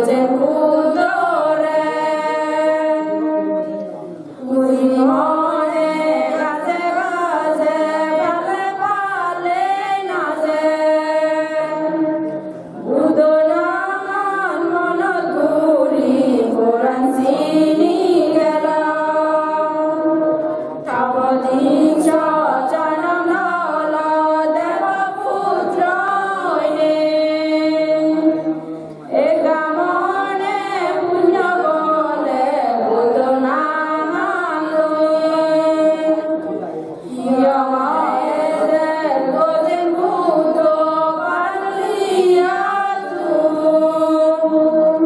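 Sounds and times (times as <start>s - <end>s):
women chanting in unison: 0.0s - 3.8s, 4.4s - 45.0s.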